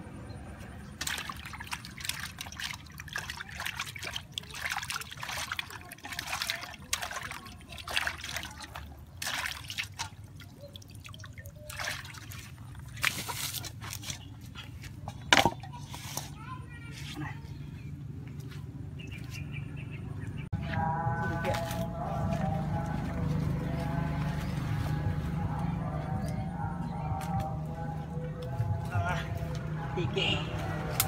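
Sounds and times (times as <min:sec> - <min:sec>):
hands splashing in water bowl: 0:01.0 - 0:14.2.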